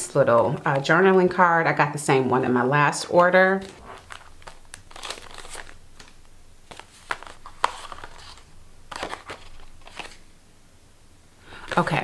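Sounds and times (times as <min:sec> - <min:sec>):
paper rustling and crinkling: 0:03.6 - 0:10.3.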